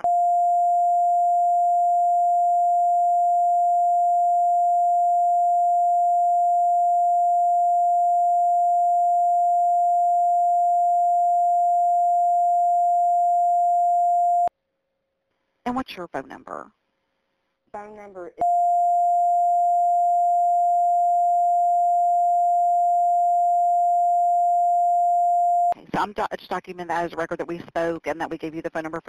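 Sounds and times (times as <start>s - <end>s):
censor bleep tone: 0.0s - 14.5s, 18.4s - 25.8s.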